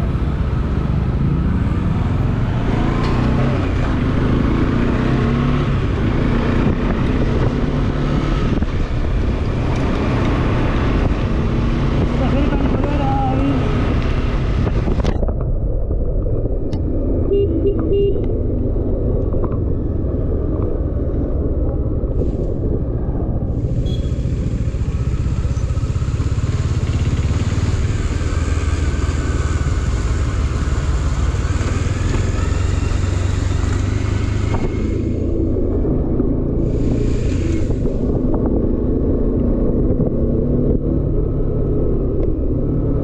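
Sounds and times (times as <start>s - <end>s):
motorcycle engine running: 0.0s - 37.2s
wind and road noise: 0.0s - 43.0s.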